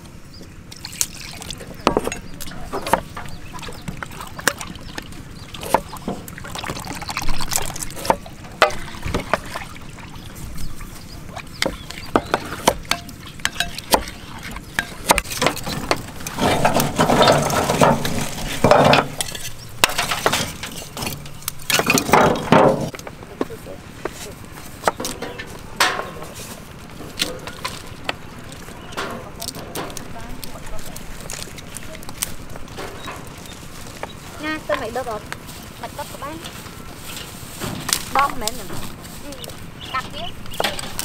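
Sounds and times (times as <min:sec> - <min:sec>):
liquid stirred and poured: 0:00.8 - 0:22.3
utensils clicking and clinking: 0:11.6 - 0:23.0.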